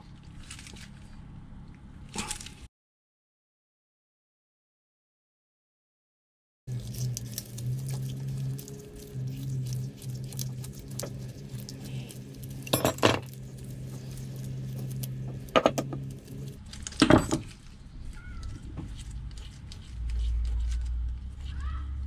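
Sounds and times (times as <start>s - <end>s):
low steady hum: 6.7s - 22.0s.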